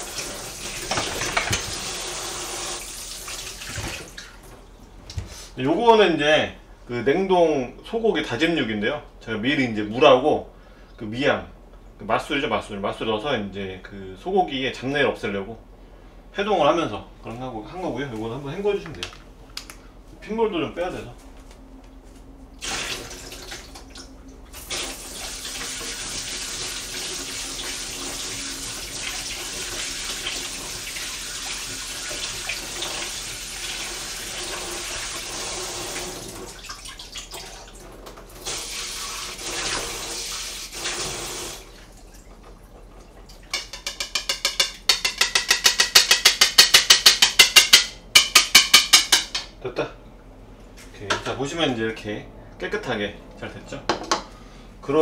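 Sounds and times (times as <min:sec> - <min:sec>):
kitchen tap running: 0:00.0 - 0:04.4, 0:22.6 - 0:49.5
fast rattling taps: 0:43.5 - 0:49.5.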